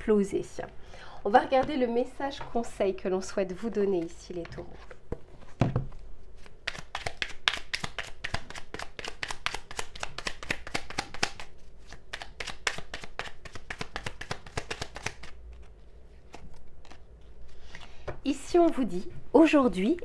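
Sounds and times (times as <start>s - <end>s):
cards being shuffled: 6.2s - 18.0s.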